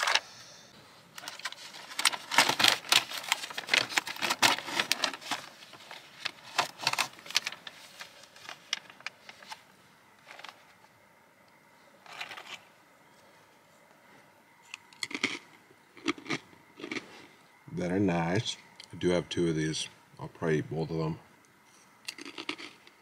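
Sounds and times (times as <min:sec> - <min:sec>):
plastic package crinkling: 0:01.1 - 0:09.6
plastic rustles: 0:01.1 - 0:10.8.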